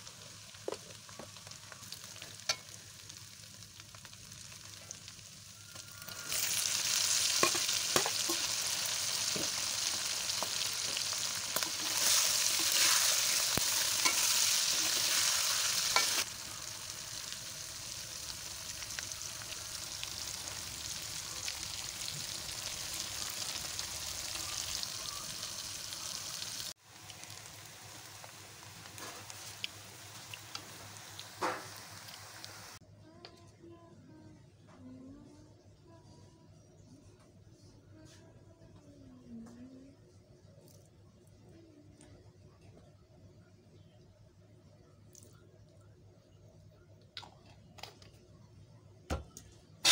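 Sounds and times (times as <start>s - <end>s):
hot oil sizzling: 0.0s - 32.8s.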